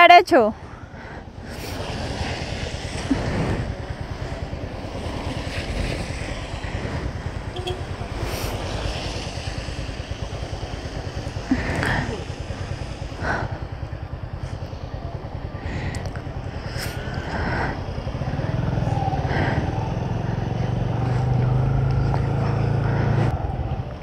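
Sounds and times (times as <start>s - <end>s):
motorcycle engine running: 0.5s - 24.0s
heavy rain on wet road: 1.4s - 14.4s.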